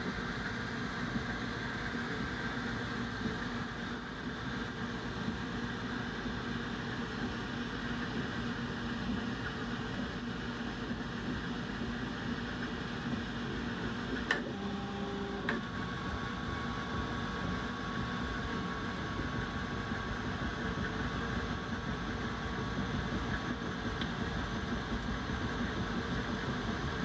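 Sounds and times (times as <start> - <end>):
fan noise: 0.0 - 27.0.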